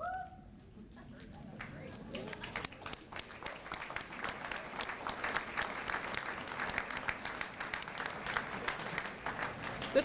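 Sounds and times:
audience applauding: 0:01.2 - 0:10.0.

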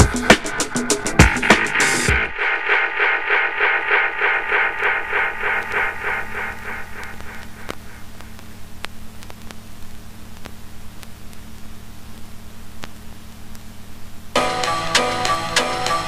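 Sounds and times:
vinyl surface hiss: 0:00.0 - 0:16.0
low hum: 0:00.1 - 0:14.3
vinyl clicks and pops: 0:04.9 - 0:14.3.

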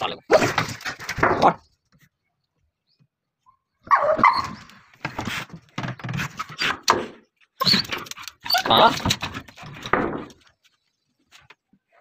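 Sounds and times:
dog barking and whining: 0:03.8 - 0:04.7, 0:07.6 - 0:09.0.

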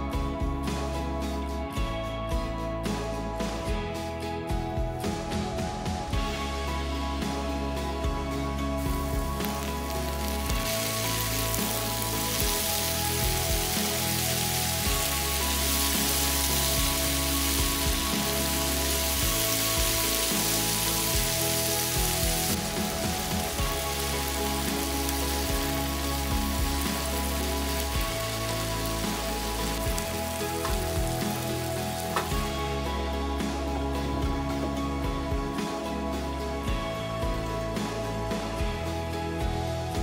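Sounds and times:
soft background music: 0:00.0 - 0:40.0
food sizzling in a frying pan: 0:08.7 - 0:33.0.

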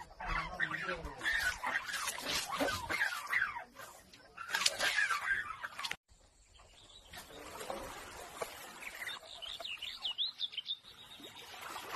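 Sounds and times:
bird chirps: 0:08.6 - 0:11.6.

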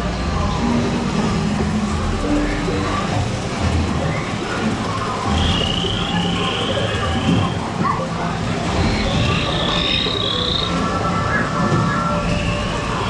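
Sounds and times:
soft ambient music: 0:00.0 - 0:13.0
chirping and croaking creature calls: 0:08.9 - 0:10.8.

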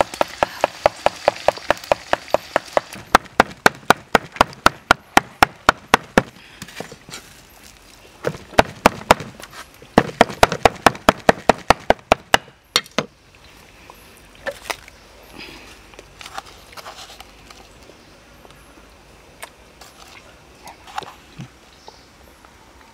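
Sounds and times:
cleaver chopping on wooden block: 0:08.2 - 0:09.3, 0:10.0 - 0:13.1.

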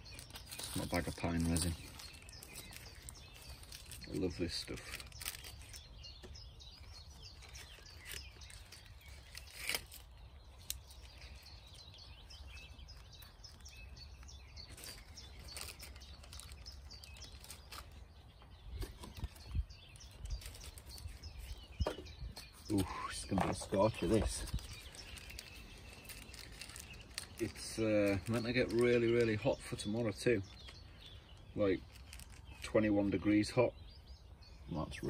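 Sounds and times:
tinder clicking and rustling: 0:00.0 - 0:32.7.

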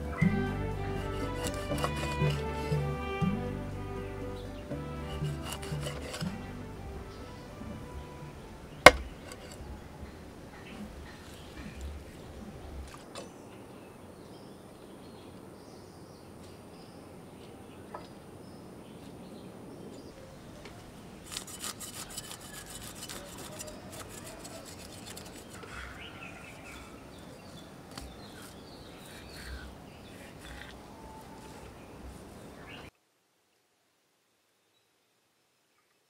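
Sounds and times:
birds chirping: 0:00.0 - 0:21.0, 0:22.2 - 0:32.9
knife scraping fish on wood: 0:01.0 - 0:02.8, 0:04.9 - 0:06.4, 0:08.9 - 0:09.6, 0:21.2 - 0:26.1, 0:27.9 - 0:30.8.

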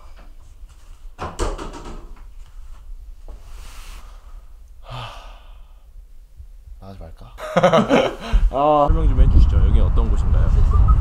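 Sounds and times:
bed sheets and pillows rustling: 0:02.3 - 0:04.5
person sighing: 0:04.8 - 0:05.8.

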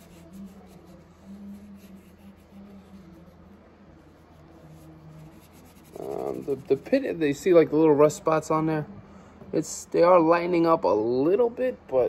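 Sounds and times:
wipe rubbing on metal pliers: 0:00.0 - 0:07.1.

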